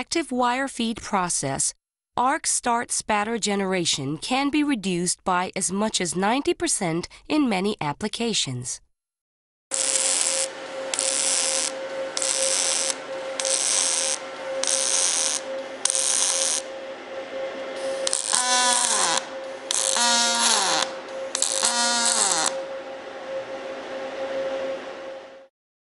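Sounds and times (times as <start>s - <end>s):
welding arc hissing bursts: 9.7s - 16.6s, 17.8s - 22.6s
steady electrical hum: 9.7s - 25.5s.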